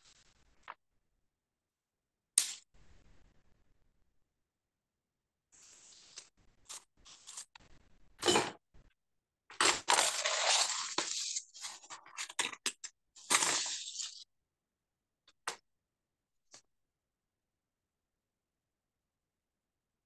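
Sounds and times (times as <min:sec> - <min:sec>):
ruler and paper scraping: 0:09.8 - 0:12.4, 0:13.2 - 0:14.2.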